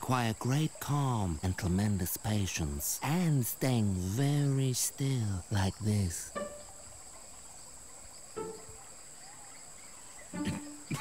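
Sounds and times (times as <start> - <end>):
insects chirring: 0.0 - 11.0
short pitched calls: 6.1 - 7.2, 10.0 - 11.0.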